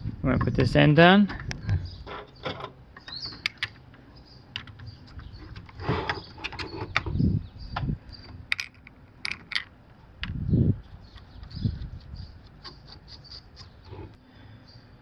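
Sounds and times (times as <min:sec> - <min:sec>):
plastic parts clicking and knocking: 0:01.3 - 0:07.1, 0:08.5 - 0:10.4.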